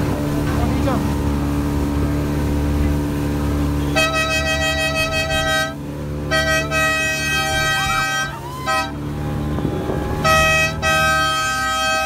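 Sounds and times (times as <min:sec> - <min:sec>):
small boat motor running: 0:00.0 - 0:12.0
horn blasts: 0:03.8 - 0:12.0.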